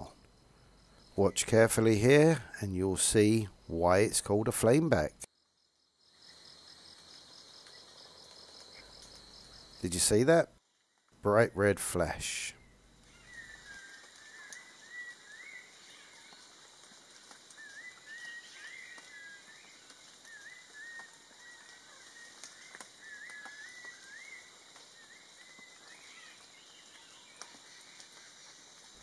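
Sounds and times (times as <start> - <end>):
faint ticks: 6.9 - 9.8, 16.3 - 24.1, 24.7 - 29.0
bird chirping whistles: 13.2 - 16.2, 17.6 - 19.7, 20.3 - 27.4.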